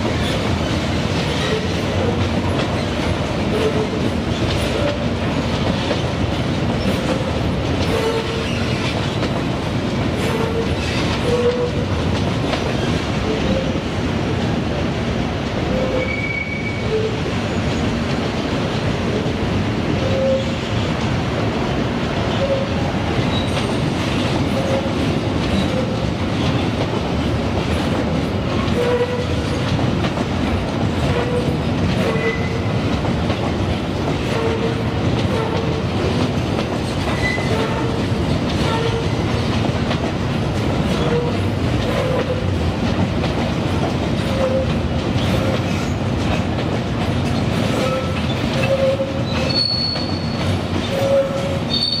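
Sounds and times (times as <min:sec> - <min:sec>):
freight train rumbling and rattling: 0:00.0 - 0:52.0
train wheels squealing: 0:07.8 - 0:09.2, 0:15.7 - 0:17.7, 0:20.0 - 0:20.8, 0:22.3 - 0:26.0, 0:31.1 - 0:32.7, 0:37.1 - 0:38.0, 0:44.2 - 0:46.0, 0:47.7 - 0:52.0.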